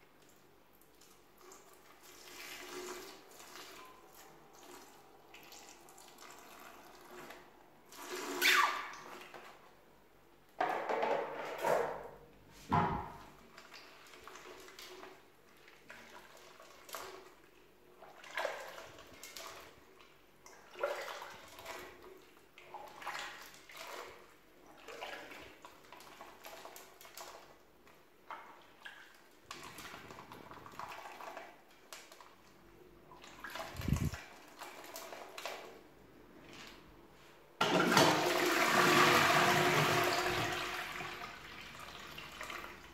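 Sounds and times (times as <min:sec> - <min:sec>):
toilet flushing: 0:01.6 - 0:09.3, 0:37.6 - 0:42.9.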